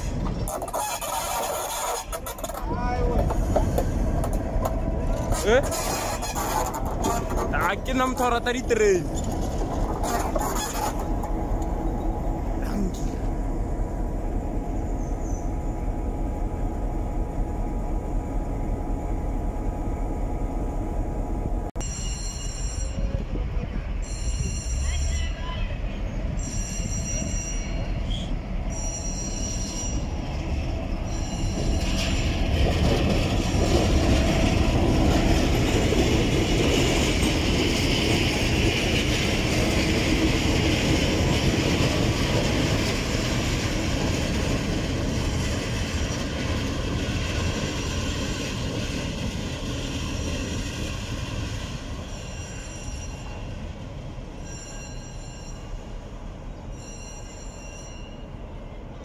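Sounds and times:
wheels rolling on track: 0.0s - 12.4s
diesel locomotive engines: 0.0s - 59.0s.

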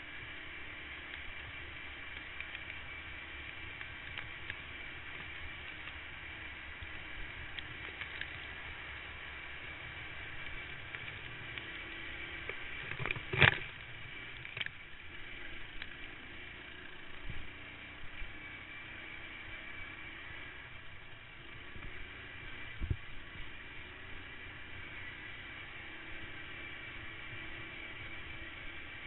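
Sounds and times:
kart engine and wind noise: 0.0s - 29.0s
small clicks: 1.0s - 6.0s, 6.8s - 8.7s, 10.3s - 14.8s.

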